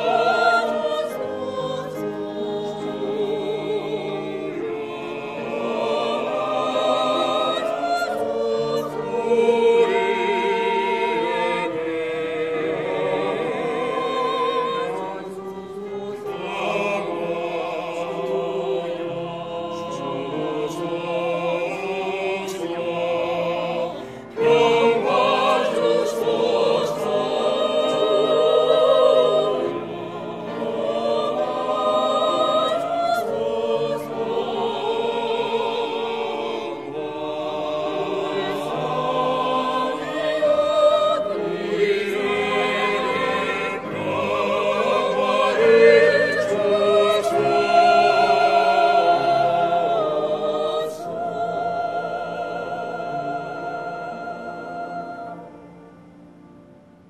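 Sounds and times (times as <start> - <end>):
choir singing sacred anthem: 0.0 - 57.0.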